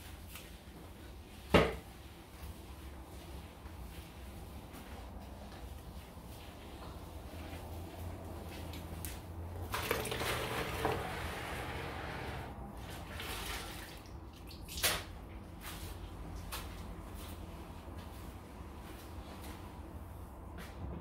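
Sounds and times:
water splashing in bucket: 0:09.6 - 0:11.1, 0:12.9 - 0:15.2.

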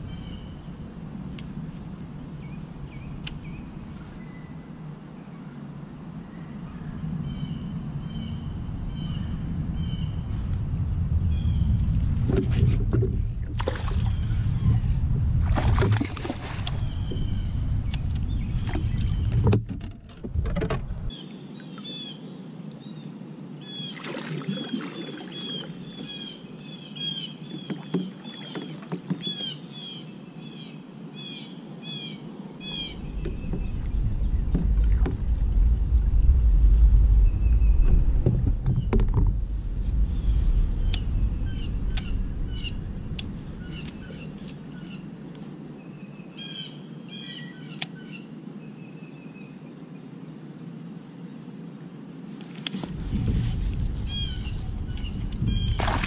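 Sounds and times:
wind rumbling on microphone: 0:00.0 - 0:21.2, 0:32.5 - 0:46.7, 0:52.3 - 0:56.0
kayak paddling in water: 0:06.7 - 0:22.0, 0:23.8 - 0:29.6, 0:32.6 - 0:45.2, 0:52.6 - 0:56.0
bird chirping: 0:25.4 - 0:48.3.

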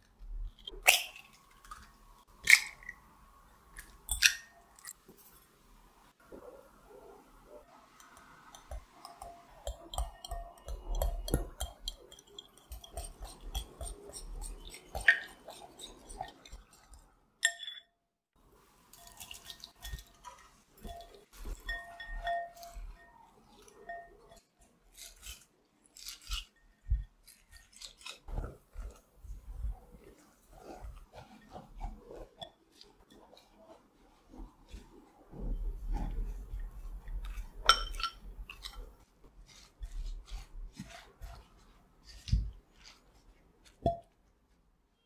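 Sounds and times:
spatula stirring vegetables rustling: 0:03.1 - 0:17.4, 0:18.3 - 0:45.0
whisk clinking against glass bowl: 0:08.0 - 0:17.9, 0:19.0 - 0:24.4.

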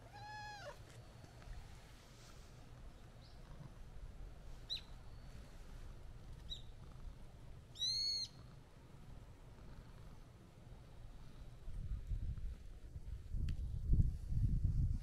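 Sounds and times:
bird calling: 0:07.7 - 0:08.5.

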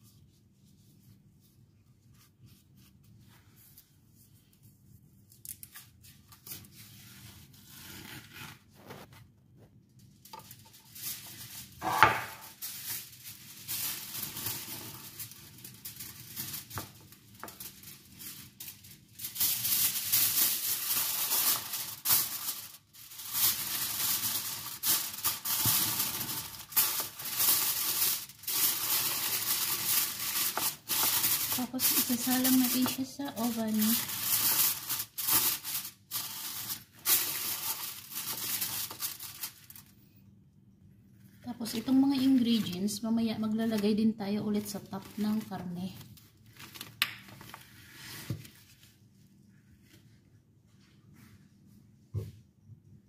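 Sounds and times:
aluminium foil crinkling: 0:09.9 - 0:40.0, 0:41.4 - 0:49.0.

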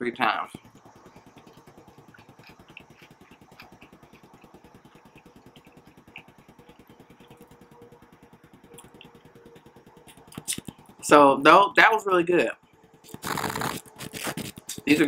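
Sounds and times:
engine throbbing: 0:00.2 - 0:15.0
chewing clicks: 0:00.5 - 0:11.0.

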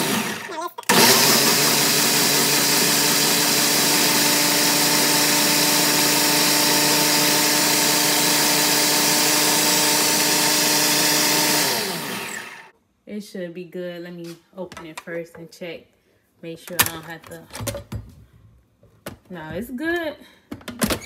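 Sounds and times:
blender motor running: 0:00.0 - 0:12.7.

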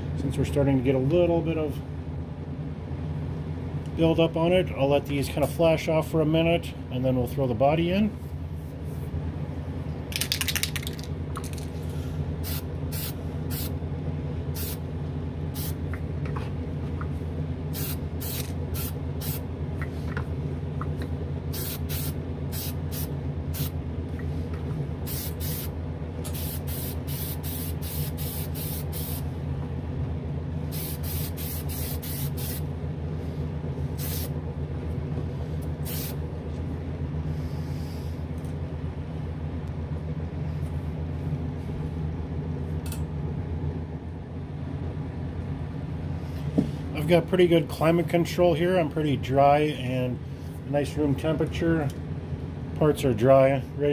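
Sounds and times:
exhaust fan hum: 0:00.0 - 0:53.9
aerosol spray can hissing: 0:26.3 - 0:29.2, 0:30.8 - 0:32.6, 0:35.8 - 0:36.2.

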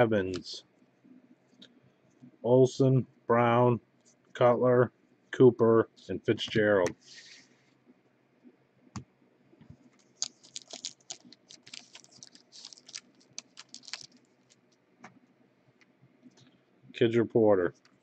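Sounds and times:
cards being handled: 0:09.7 - 0:14.7
wrapper tearing and crinkling: 0:10.0 - 0:14.7.

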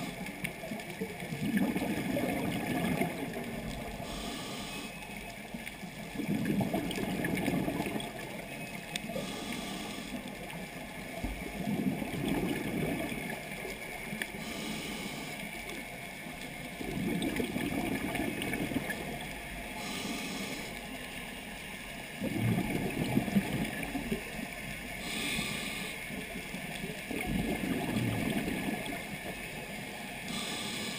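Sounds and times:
exhaled bubbles burbling: 0:00.0 - 0:04.2, 0:06.0 - 0:08.4, 0:11.2 - 0:13.8, 0:16.7 - 0:20.0, 0:22.1 - 0:24.5, 0:26.7 - 0:29.3
diver inhaling through regulator: 0:04.0 - 0:05.0, 0:09.1 - 0:10.4, 0:14.4 - 0:15.4, 0:19.8 - 0:20.8, 0:25.0 - 0:26.1, 0:30.2 - 0:30.9.

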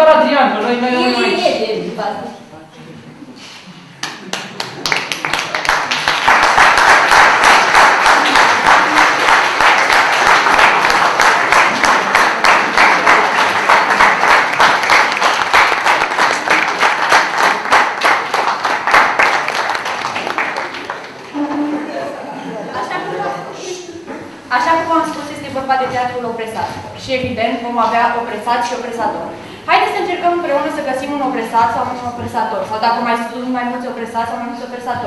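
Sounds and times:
audience applauding: 0:04.0 - 0:21.7.

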